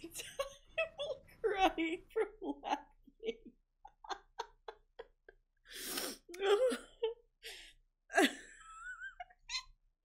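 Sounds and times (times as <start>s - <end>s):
woman laughing hard: 2.5s - 5.4s.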